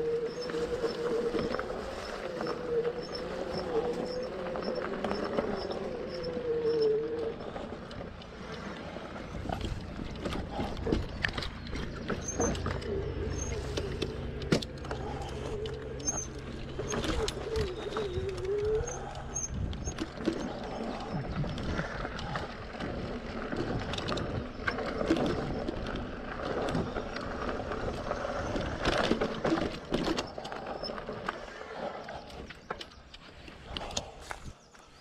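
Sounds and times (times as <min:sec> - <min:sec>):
low wavering hum: 0:00.0 - 0:34.7
bike tyres rumbling on trail: 0:00.0 - 0:35.0
bike knocks and rattles over bumps: 0:07.4 - 0:31.6.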